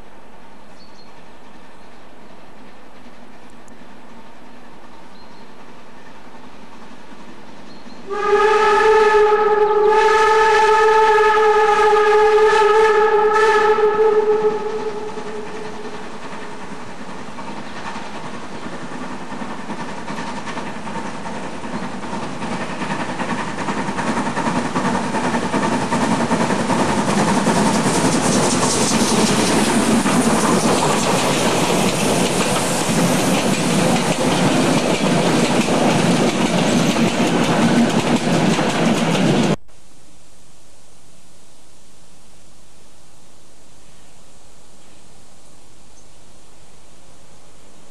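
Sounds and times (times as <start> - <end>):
steam train running past: 0.0 - 39.6
steam whistle blast: 8.1 - 16.0.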